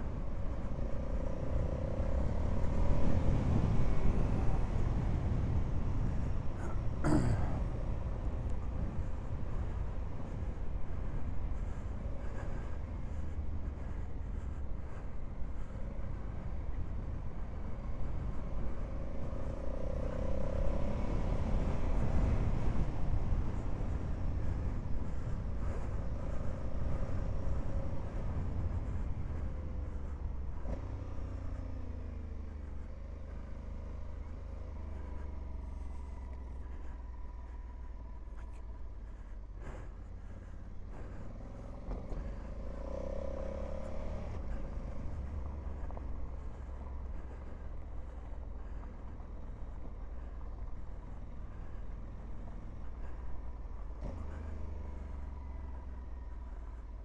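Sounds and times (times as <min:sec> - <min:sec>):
wind rumble on microphone: 0:00.0 - 0:33.5.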